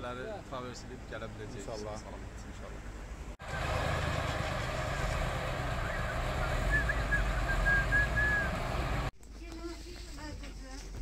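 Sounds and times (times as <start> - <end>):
truck engine idling: 3.4 - 9.1.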